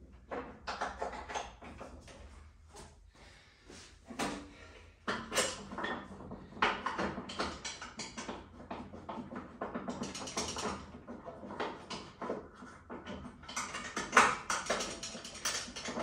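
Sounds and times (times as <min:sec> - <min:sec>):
metal parts and tools clanking: 0:13.4 - 0:16.0.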